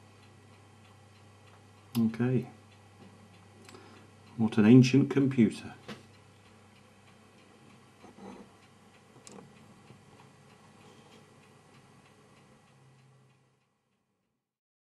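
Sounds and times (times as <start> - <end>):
faint regular ticking: 0.0 - 14.0.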